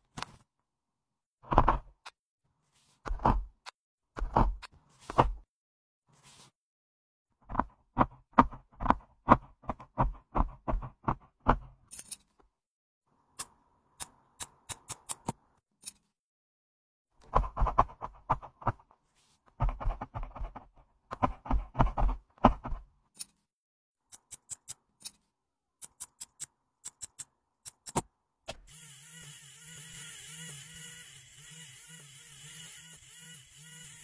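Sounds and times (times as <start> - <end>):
electric nail drill whirring: 28.6 - 34.0.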